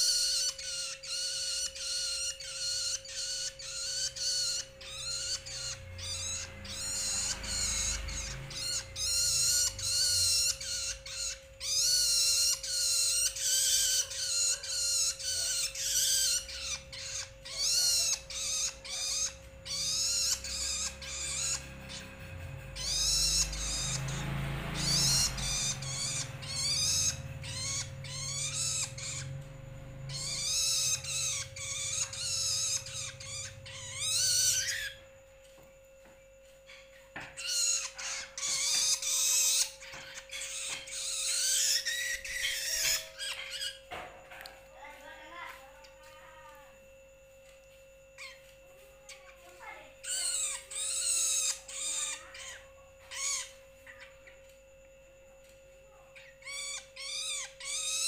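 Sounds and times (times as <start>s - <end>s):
bird calling wavering notes: 0.0s - 58.0s
faint steady tone: 16.3s - 58.0s.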